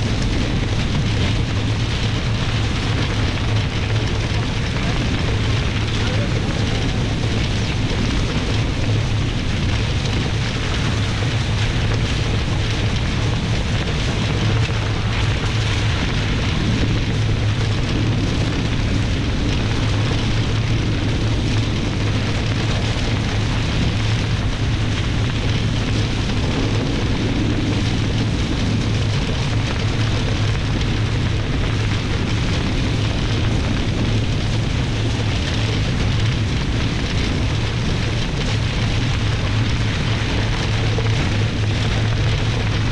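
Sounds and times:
wind rushing: 0.0s - 11.7s
low rumble: 0.0s - 42.9s.

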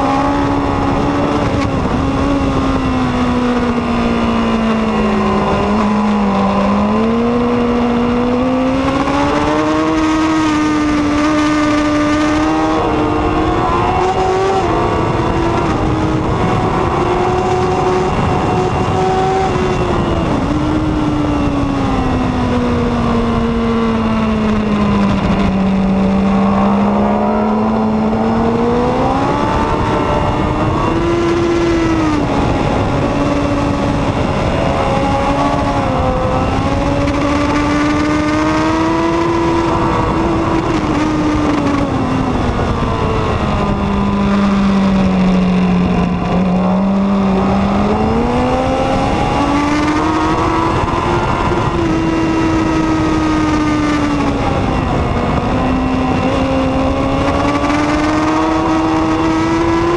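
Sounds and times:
motorcycle engine at racing revs: 0.0s - 59.9s
steady rushing noise: 0.0s - 59.9s.

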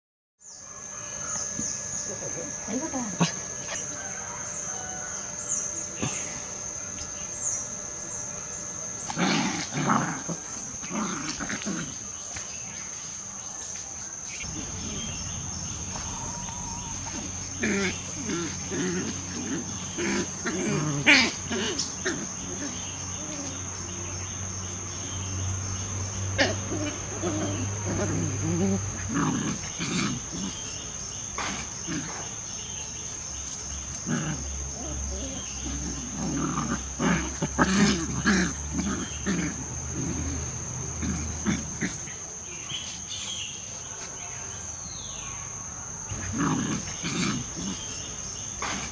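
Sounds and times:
puppies growling: 1.0s - 44.1s, 46.0s - 48.9s.

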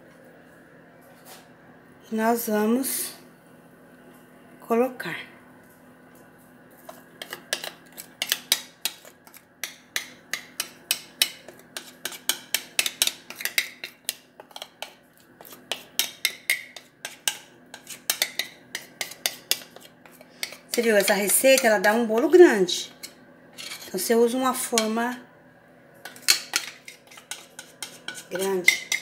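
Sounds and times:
metal spoon scraping glass bowl: 7.2s - 9.4s, 10.4s - 21.7s, 23.0s - 24.0s, 26.0s - 29.0s.

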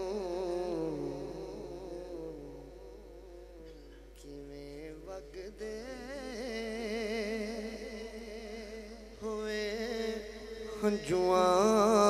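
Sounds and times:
man singing with vibrato: 0.0s - 12.0s.

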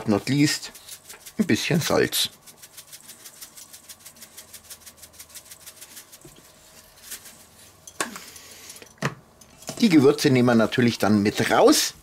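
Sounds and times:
salt shaker rattling: 0.0s - 8.9s.

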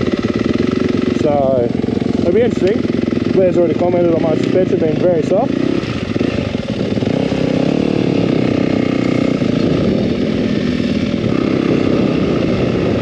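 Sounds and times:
dirt bike engine revving: 0.0s - 13.0s.

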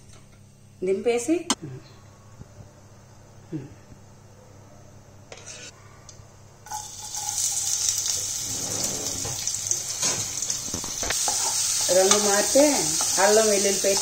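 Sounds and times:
onion sizzling in hot oil: 6.7s - 14.0s.

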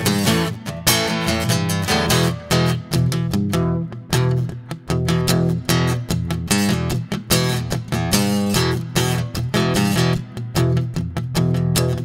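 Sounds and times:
bass line: 0.0s - 12.0s
strummed guitar chords: 0.0s - 12.0s.

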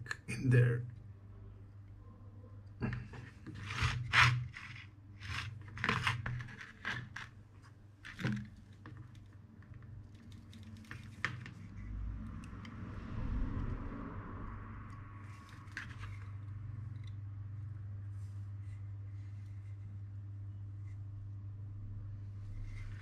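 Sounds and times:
low steady hum: 0.0s - 23.0s
tools scraping and rustling: 2.8s - 9.2s.

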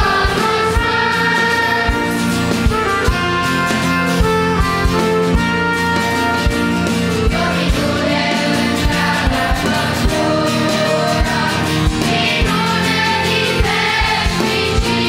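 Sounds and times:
children's choir singing a hymn: 0.0s - 3.9s, 6.9s - 15.0s
band accompaniment: 0.0s - 15.0s.

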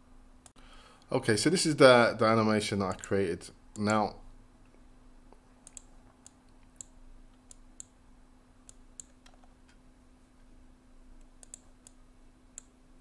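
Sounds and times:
low steady hum: 0.0s - 13.0s
computer mouse clicks: 5.6s - 8.0s, 8.6s - 9.8s, 11.2s - 12.0s.

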